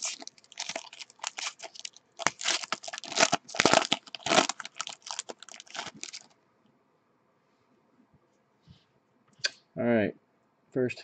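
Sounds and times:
plastic wrapper crinkling and tearing: 0.0s - 6.3s.

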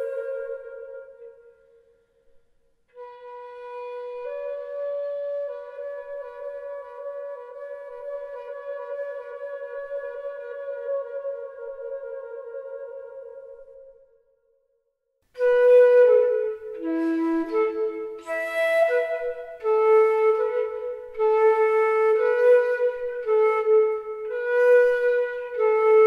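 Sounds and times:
solo flute melody: 0.0s - 14.2s, 15.3s - 26.0s.

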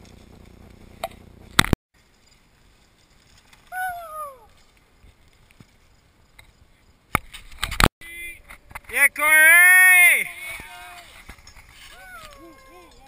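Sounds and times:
outdoor rush: 0.0s - 13.0s.

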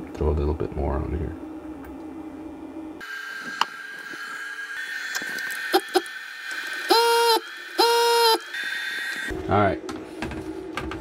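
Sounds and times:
desoldering vacuum pump bursts: 3.6s - 9.3s.

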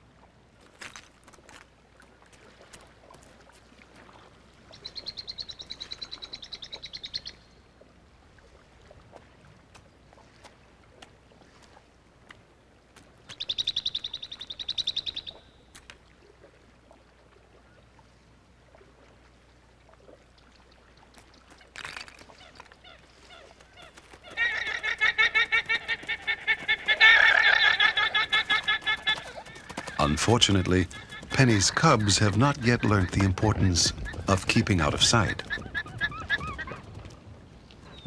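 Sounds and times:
guanaco alarm calls: 22.4s - 36.8s.

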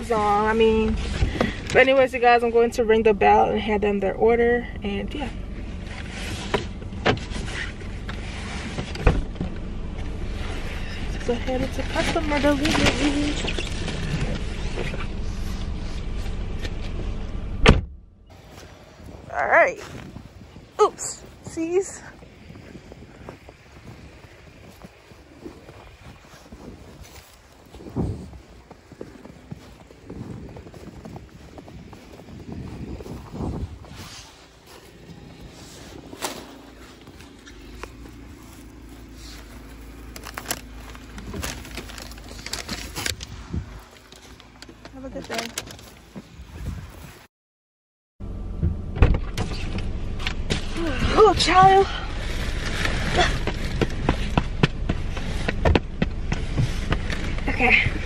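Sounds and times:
car engine idling: 0.0s - 46.6s, 48.2s - 58.0s
low steady rumble: 0.0s - 47.2s, 48.2s - 58.0s
car door shutting: 16.6s - 18.0s, 48.6s - 50.7s
phone handling rustles: 36.0s - 46.0s.

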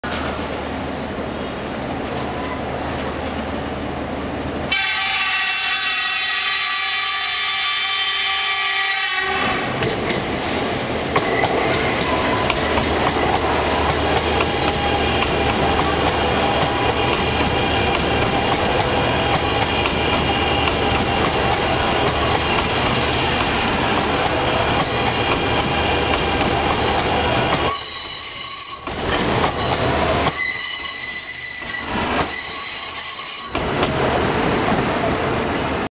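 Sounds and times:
rush of passing train: 0.0s - 35.9s
train horn: 4.7s - 9.7s
high squealing brakes: 11.3s - 12.8s, 27.6s - 33.9s.

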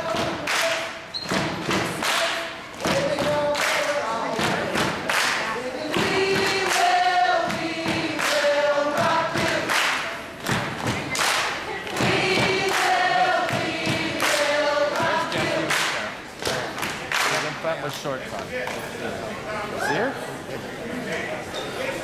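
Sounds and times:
choir singing in harmony: 5.6s - 10.2s, 11.8s - 16.1s
steady thudding beat: 6.0s - 9.7s, 11.9s - 15.7s.

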